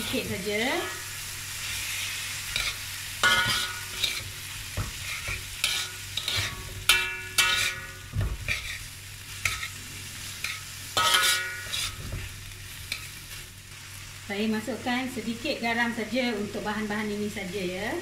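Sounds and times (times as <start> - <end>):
metal spatula striking wok: 0.0 - 1.1, 2.5 - 8.8, 9.4 - 9.8, 10.4 - 12.0
food sizzling: 0.0 - 18.0.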